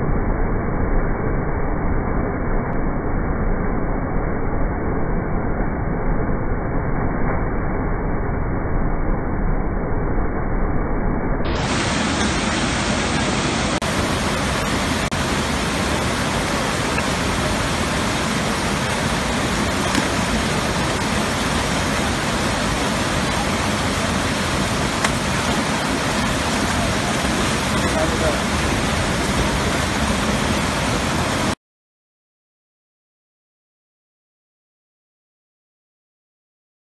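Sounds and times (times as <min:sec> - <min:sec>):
water pouring over a dam: 0:11.6 - 0:31.6.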